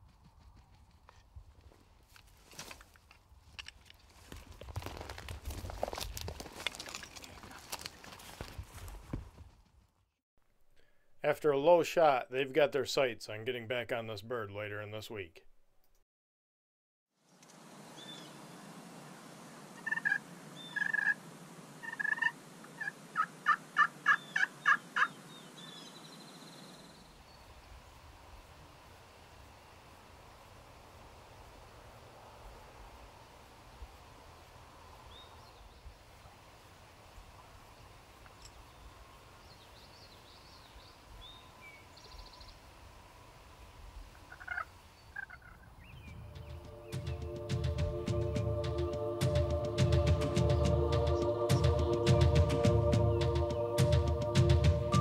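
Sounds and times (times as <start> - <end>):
steady outdoor hiss: 11.2 - 15.3, 17.2 - 55.0
songbird chirps: 17.3 - 28.1, 37.3 - 55.0
turkey calling: 19.8 - 21.2, 21.8 - 25.2, 44.2 - 48.9.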